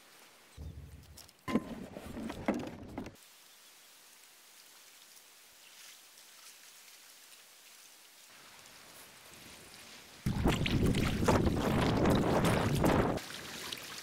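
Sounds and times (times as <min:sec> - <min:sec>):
water dripping and lapping: 0:05.0 - 0:14.0.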